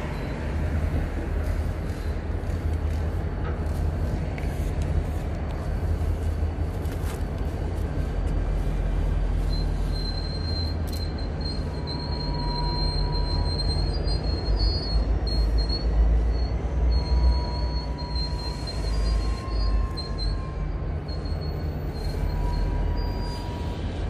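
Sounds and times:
train wheel squeal: 0.0 - 3.1, 8.7 - 24.0
train low rumble: 0.0 - 24.0.

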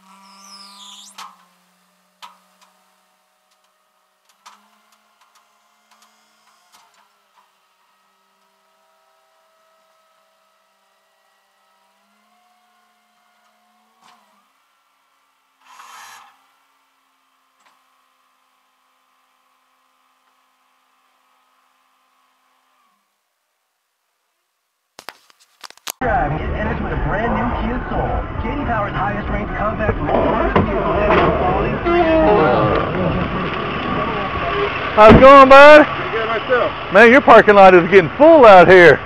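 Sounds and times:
truck engine droning: 26.0 - 39.0.

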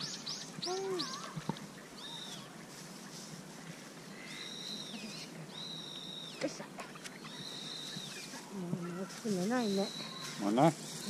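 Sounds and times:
bird whistled call: 0.0 - 2.5, 4.2 - 6.5, 7.1 - 9.0, 9.6 - 11.0.

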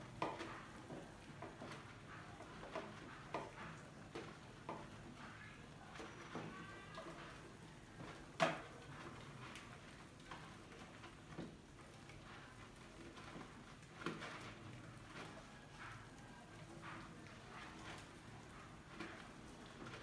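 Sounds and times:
rodents scrabbling on plastic jar: 0.0 - 20.0.

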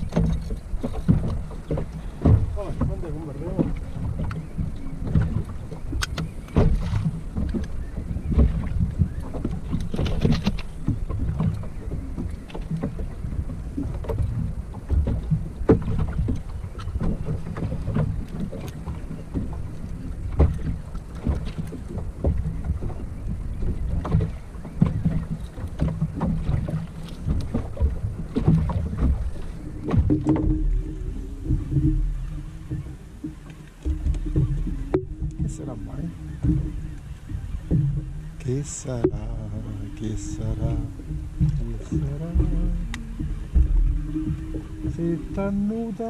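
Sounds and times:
small knocks and clicks: 0.0 - 3.0, 3.6 - 13.1
water slapping boat hull: 0.0 - 46.0
wind rumbling on microphone: 0.0 - 46.0.

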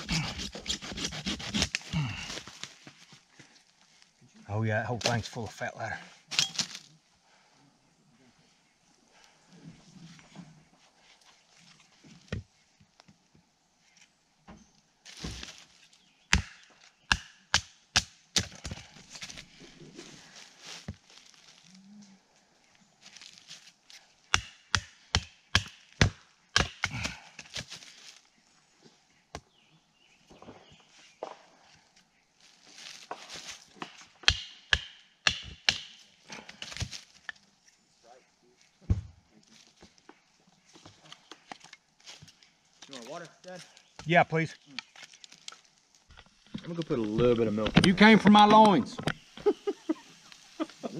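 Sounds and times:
knife chopping wood: 0.0 - 2.0, 16.3 - 18.8, 24.3 - 27.6, 33.8 - 36.0
wood splintering and crackling: 0.0 - 2.8
scuffling and rustling: 15.0 - 16.1, 18.6 - 24.1, 27.1 - 29.0, 30.2 - 33.9.

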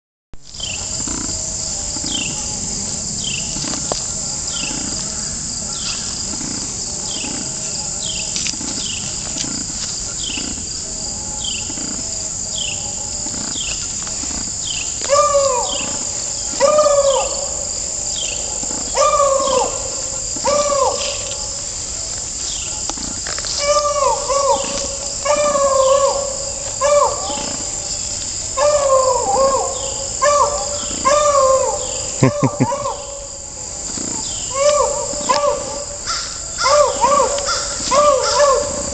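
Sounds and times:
insects droning: 0.4 - 38.9.

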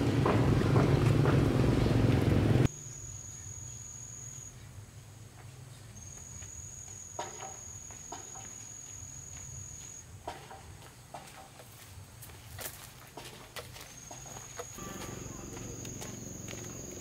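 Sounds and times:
insect trilling: 2.7 - 4.6, 14.0 - 17.0.

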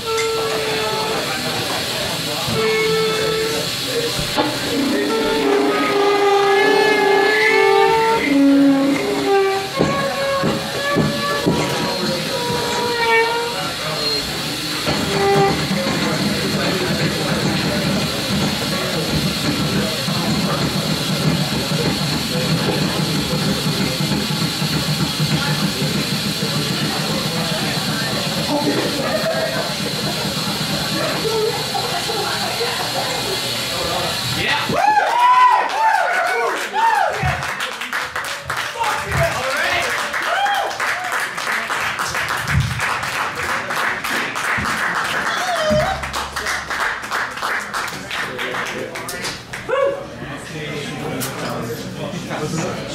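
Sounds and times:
short pitched notes: 0.0 - 16.8, 45.4 - 47.0
gliding call from crowd: 0.0 - 19.0
saxophone and guitar noise drone: 0.0 - 24.0, 25.6 - 34.7, 45.3 - 46.8
crowd talking: 0.0 - 52.9
audience clapping: 34.9 - 49.8.

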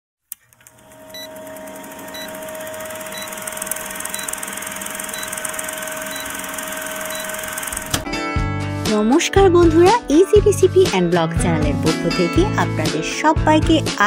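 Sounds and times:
projector-like mechanical whir: 0.4 - 8.0
short high beeps: 4.1 - 4.4, 5.1 - 7.6.

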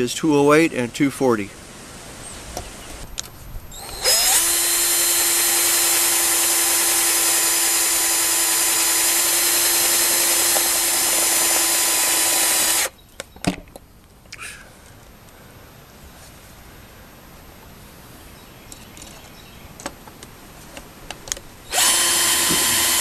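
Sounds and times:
power drill running: 3.7 - 12.9, 21.7 - 23.0.

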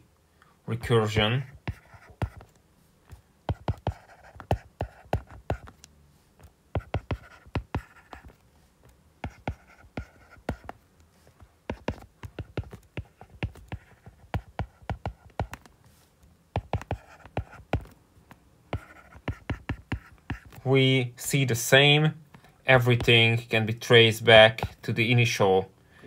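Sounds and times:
stylus tapping on glass screen: 16.6 - 17.9.

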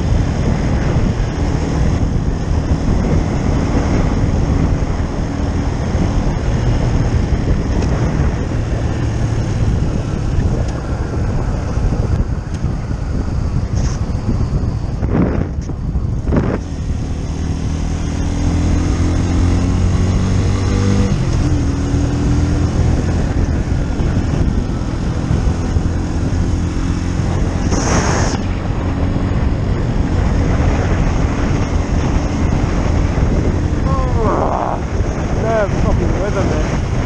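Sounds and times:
motorcycle engine pulling hard: 0.0 - 37.0
wind rushing over microphone: 0.0 - 37.0
loud rush of noise: 23.1 - 37.0.

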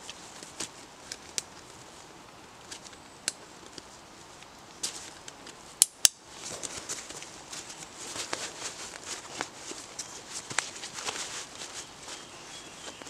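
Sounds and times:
fabric and straps rustling: 6.3 - 13.0.

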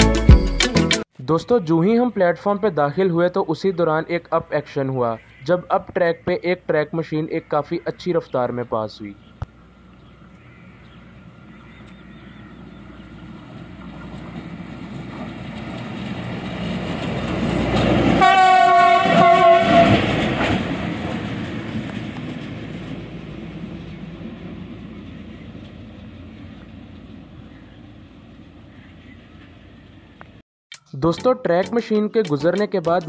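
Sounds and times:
rail maintenance vehicle running: 9.1 - 30.4
vehicle horn: 18.2 - 20.1.

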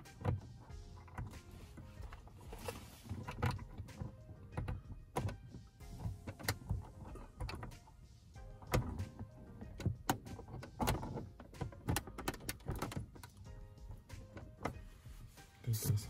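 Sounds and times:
clicks and taps on plastic housing: 8.6 - 13.4.

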